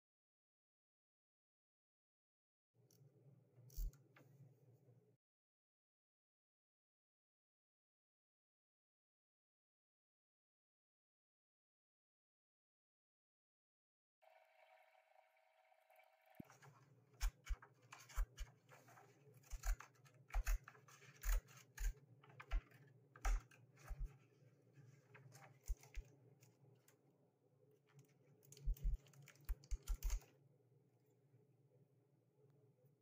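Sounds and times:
scissors snipping paper: 16.5 - 26.1, 28.4 - 30.3.

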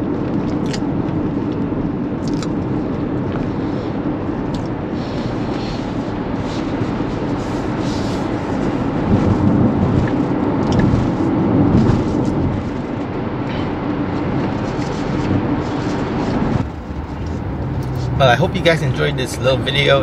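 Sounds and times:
road and tyre noise in car: 0.0 - 20.0.

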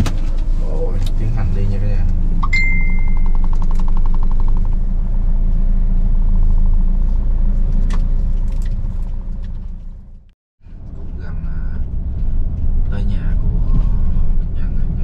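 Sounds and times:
vehicle engine rumble: 0.0 - 15.0
short high beep: 2.4 - 3.4.

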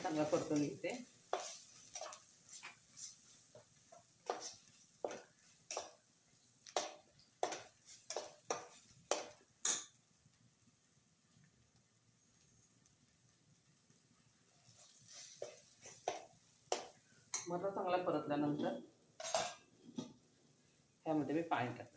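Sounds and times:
metal spatula scraping a pan: 0.0 - 6.0, 6.7 - 9.9, 14.6 - 17.5, 18.6 - 20.2.

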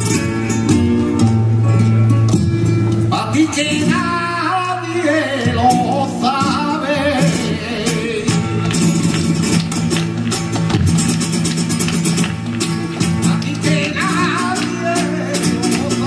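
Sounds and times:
acoustic guitar: 0.0 - 16.0
rhythmic hand-clapping: 8.4 - 16.0.

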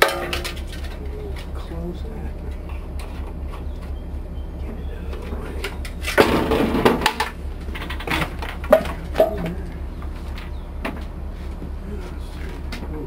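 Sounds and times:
metal cans clanking: 0.0 - 1.6, 5.6 - 9.6
metal cans scraping and rattling: 0.0 - 1.6, 5.6 - 9.6.

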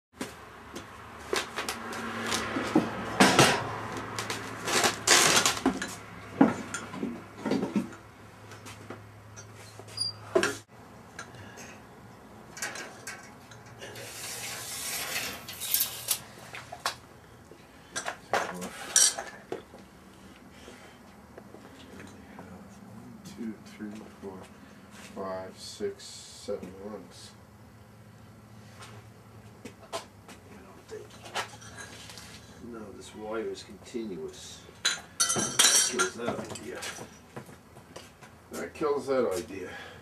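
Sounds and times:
metal objects clinking: 34.8 - 37.2.

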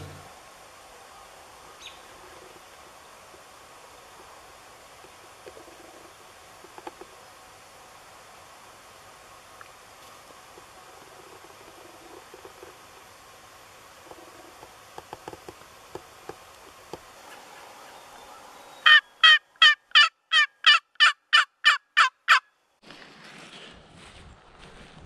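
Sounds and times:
wild turkey calling: 1.8 - 2.5, 17.2 - 22.5
footsteps rustling through grass: 22.8 - 25.0.

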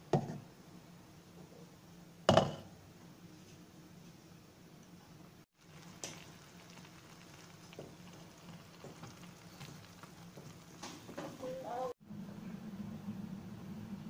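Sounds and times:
syrup bubbling in a pan: 5.5 - 12.0.

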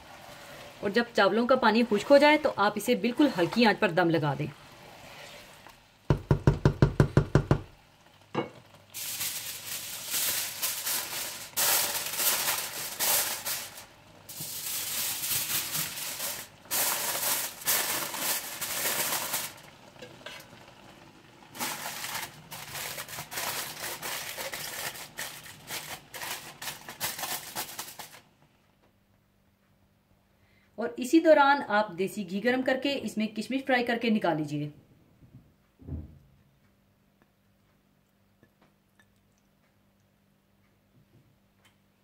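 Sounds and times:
rice sizzling and hissing in pot: 0.0 - 3.6, 4.5 - 5.8, 8.2 - 28.3.

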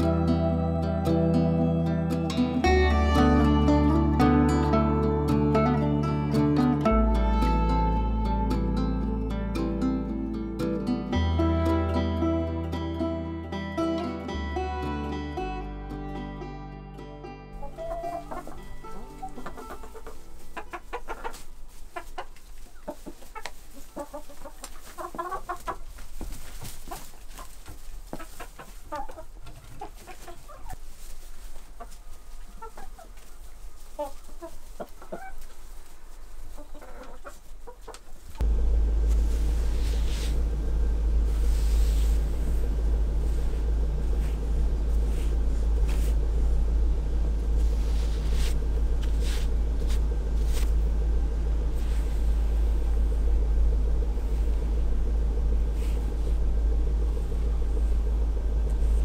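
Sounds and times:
steady low rumble: 17.6 - 28.1, 38.1 - 59.0
chickens clucking: 17.6 - 38.4.

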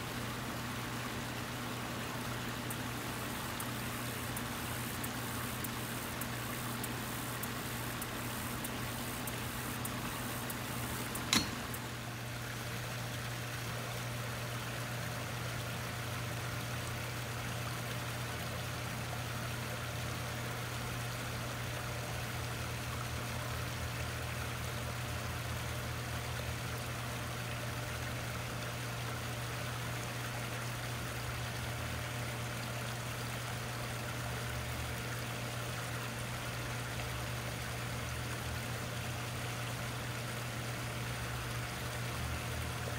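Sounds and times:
low steady hum: 0.0 - 42.9
waterfalls splashing into pond: 0.0 - 42.9
sharp click: 6.8 - 11.8.

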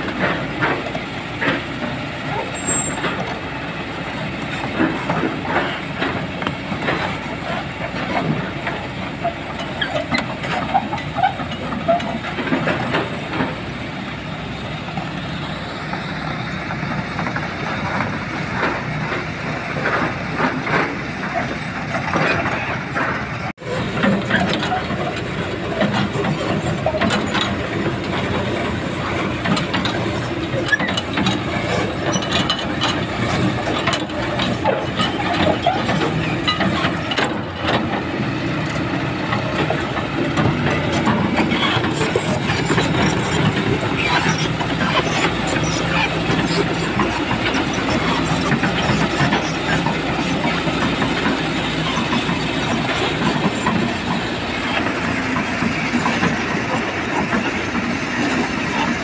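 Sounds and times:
excavator diesel engine running: 0.0 - 59.0
knocks and clatter in rock: 16.0 - 59.0.

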